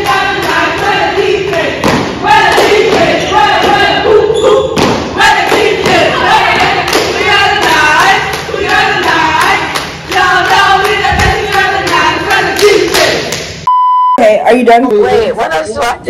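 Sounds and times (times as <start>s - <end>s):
girls chanting a cheer: 0.0s - 13.5s
foot stomps: 1.8s - 3.9s
hand claps: 4.8s - 13.6s.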